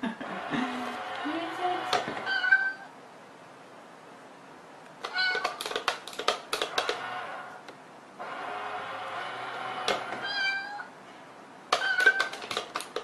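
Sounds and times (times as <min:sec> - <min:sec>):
cat meowing: 0:02.2 - 0:02.9, 0:05.0 - 0:05.6, 0:10.2 - 0:11.0, 0:11.8 - 0:12.4.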